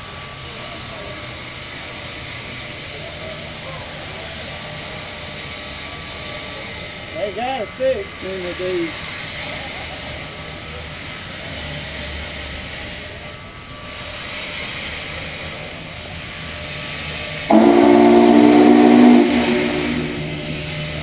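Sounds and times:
steam hissing from locomotive: 0.0 - 21.0
steam whistle chord: 17.5 - 21.0.

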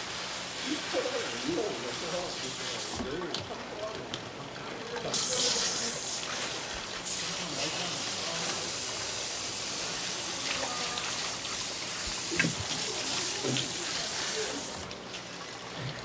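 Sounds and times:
tap water gushing onto plastic: 0.0 - 16.0.

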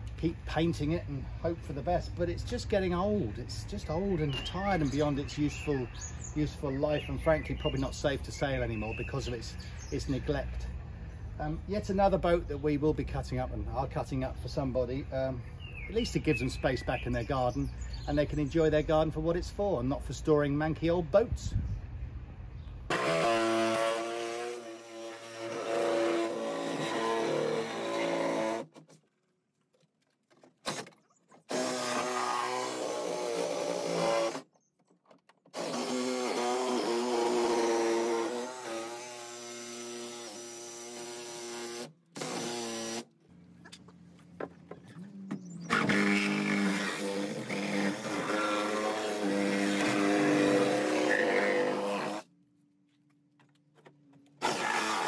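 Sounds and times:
reciprocating saw cutting wood: 22.9 - 28.9, 30.6 - 34.5, 35.5 - 43.1, 45.4 - 52.3, 54.4 - 55.0.

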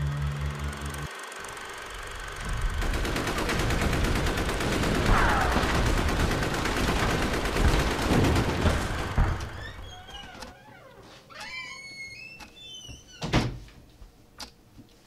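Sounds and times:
rumbling noise: 2.1 - 10.0
rapid gunfire: 2.5 - 9.6
explosions: 4.7 - 9.6.

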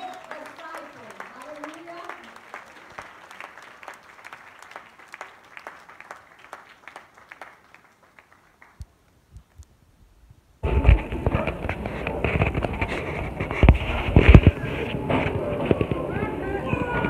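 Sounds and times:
congregation applauding: 0.0 - 9.1.

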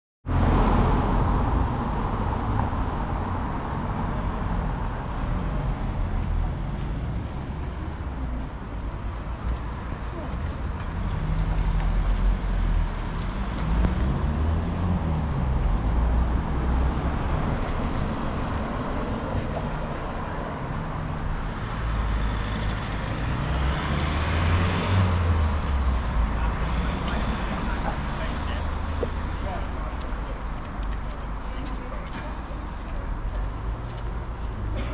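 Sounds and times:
road traffic rumble: 0.2 - 34.9.

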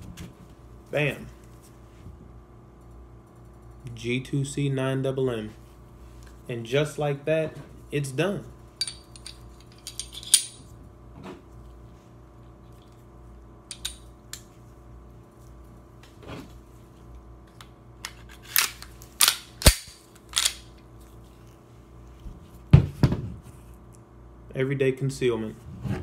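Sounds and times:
pistol slide metallic clicks: 18.4 - 20.7.

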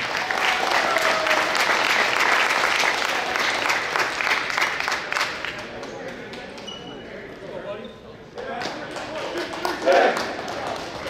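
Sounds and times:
crowd cheers: 0.0 - 3.8
crowd applauding: 0.0 - 6.6, 8.4 - 11.0.

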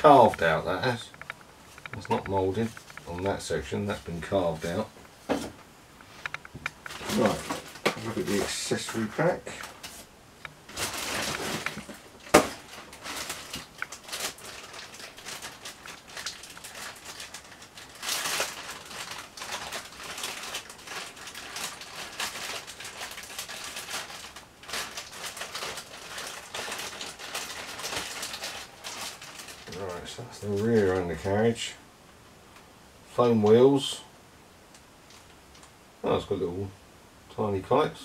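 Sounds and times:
plastic bag crinkling: 0.0 - 4.9, 6.1 - 31.3.

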